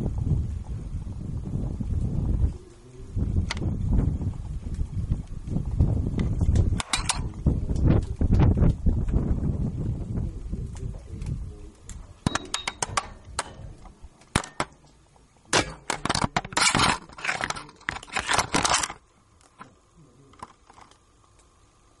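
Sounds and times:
camera knocking and scraping shaft: 15.8s - 19.0s.

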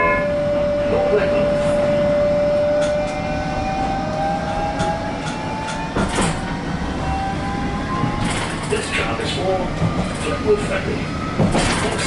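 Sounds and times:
tram motor whine: 0.0s - 12.0s
tram running noise: 0.0s - 12.0s.

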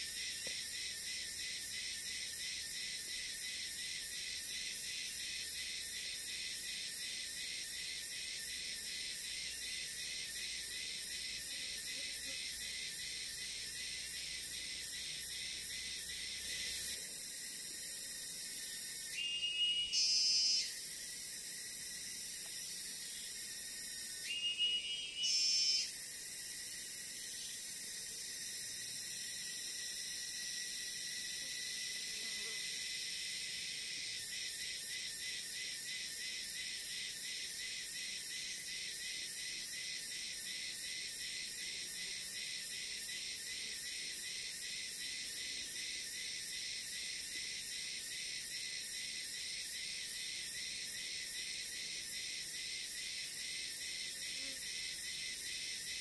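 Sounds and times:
crickets shrilling: 0.0s - 56.0s.

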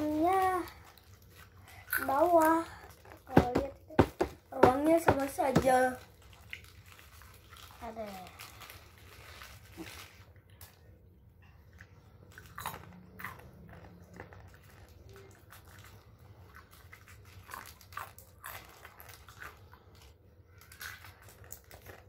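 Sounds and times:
crunchy snack chewing: 12.3s - 22.0s.

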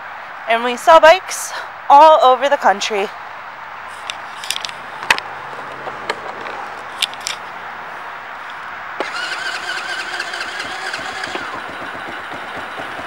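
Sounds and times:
engine starting and idling: 9.0s - 13.0s.

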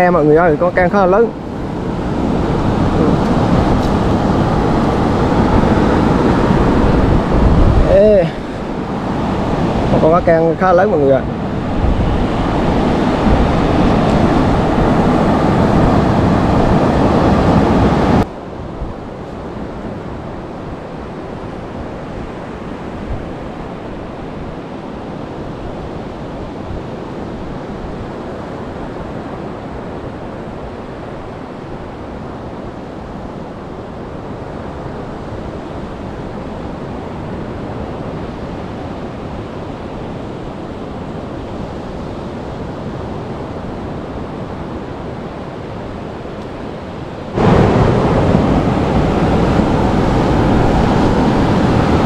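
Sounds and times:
waves breaking on beach: 0.0s - 52.0s.

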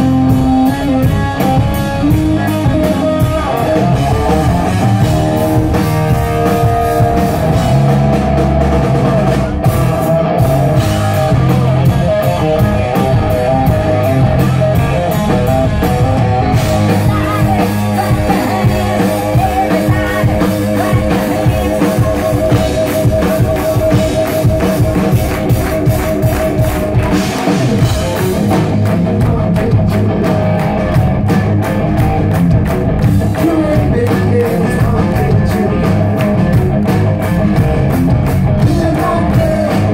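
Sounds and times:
drum kit beat: 0.0s - 39.9s
electric guitars: 0.0s - 39.9s
person singing: 16.3s - 24.8s, 27.3s - 30.6s, 33.2s - 36.2s, 38.6s - 39.9s.

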